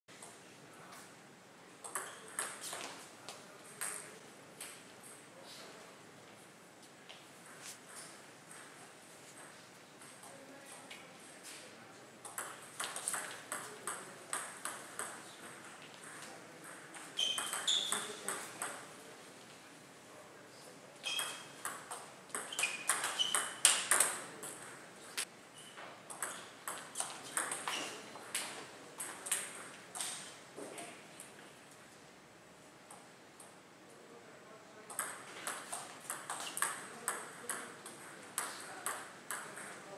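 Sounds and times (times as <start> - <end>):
shoes squeaking on floor: 17.0 - 18.3, 21.0 - 21.6, 22.4 - 23.8, 25.5 - 28.2.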